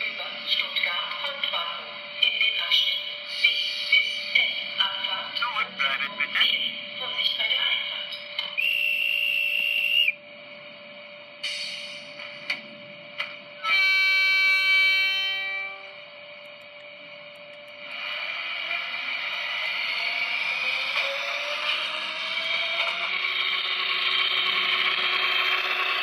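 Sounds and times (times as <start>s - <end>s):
model train running whine: 0.0s - 26.0s
horn-like tone: 8.6s - 10.2s, 13.6s - 16.1s
short high whistle: 8.6s - 10.2s
clicks: 16.4s - 17.8s.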